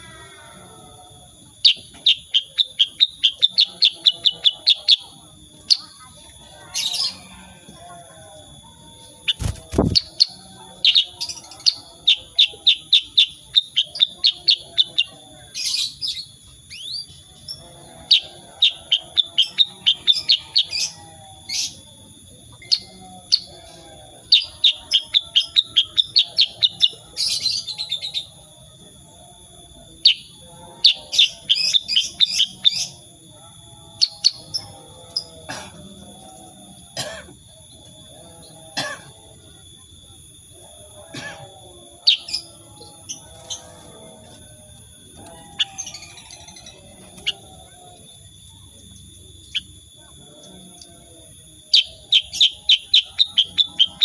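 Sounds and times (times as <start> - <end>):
bird singing sharp high notes: 9.3 - 11.2.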